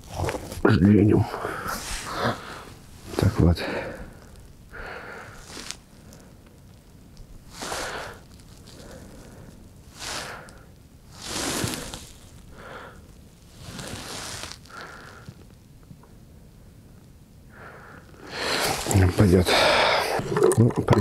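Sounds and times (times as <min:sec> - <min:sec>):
rustling crackling handling noise: 0:05.3 - 0:16.0.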